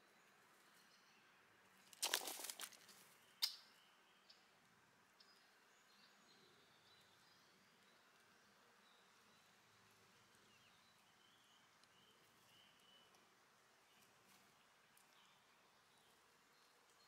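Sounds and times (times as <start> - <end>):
distant bird chirps: 0.0 - 4.6.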